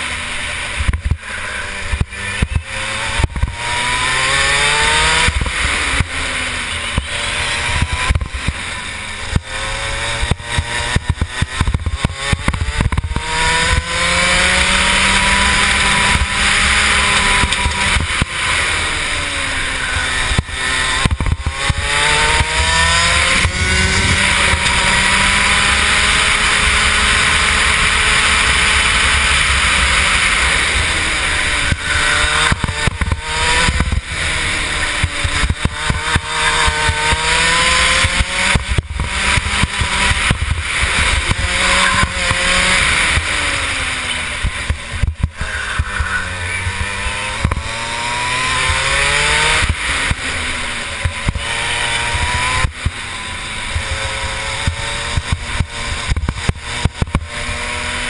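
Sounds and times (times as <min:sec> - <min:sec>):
kart engine revving: 0:00.0 - 0:58.0
wind on microphone: 0:19.2 - 0:58.0.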